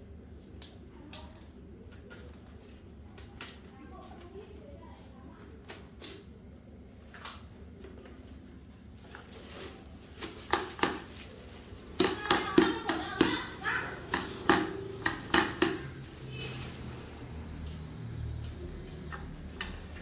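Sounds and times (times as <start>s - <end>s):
plastic bag crinkling: 8.8s - 14.1s, 15.9s - 17.6s.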